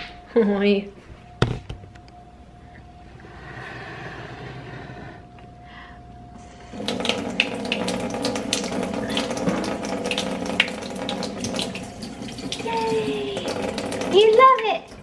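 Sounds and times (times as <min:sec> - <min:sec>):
faucet turned on: 0:06.7 - 0:15.0
water running into sink: 0:06.7 - 0:15.0.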